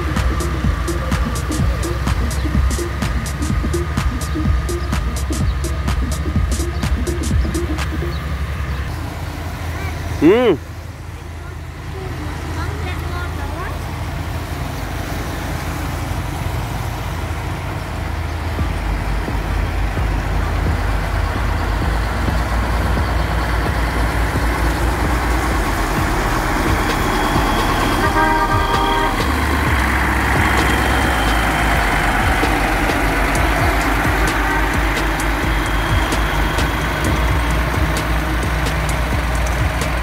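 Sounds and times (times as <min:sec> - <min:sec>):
diesel engine under load: 0:00.0 - 0:40.0
vehicle horn honk: 0:26.9 - 0:31.5, 0:33.7 - 0:38.1.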